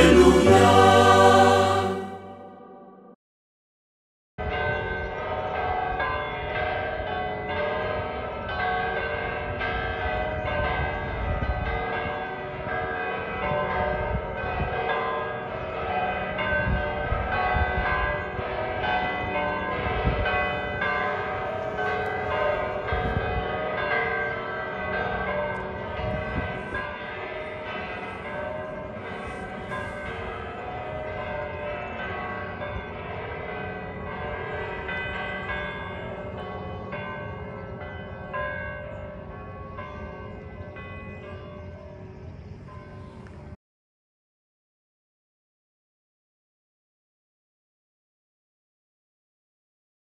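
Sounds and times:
church bells pealing: 0.0 - 3.2, 4.4 - 43.6.

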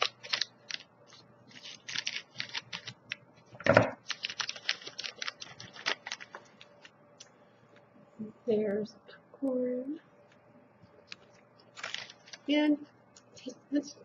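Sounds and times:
plastic bag crinkling: 0.0 - 3.1, 4.0 - 6.8, 11.7 - 12.7.

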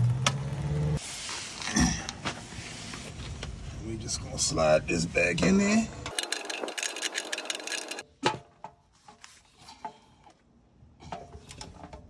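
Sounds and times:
drain plug scraping as threaded: 6.1 - 8.0
wrench metallic clicks: 6.1 - 8.0.

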